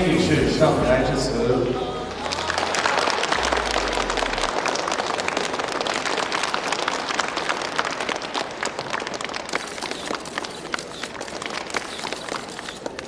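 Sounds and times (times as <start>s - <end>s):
audience applauding: 2.0s - 13.0s.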